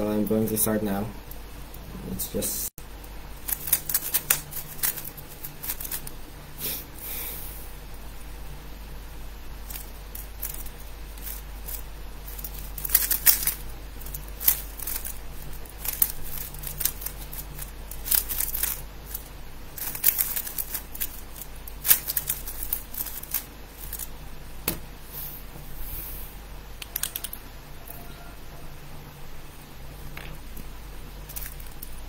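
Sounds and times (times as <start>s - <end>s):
puzzle cube clicking: 26.8s - 27.4s.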